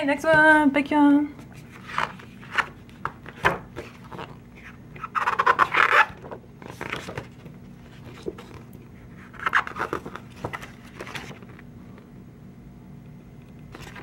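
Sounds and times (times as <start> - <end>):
book pages rustling: 1.4 - 11.7, 13.7 - 14.0.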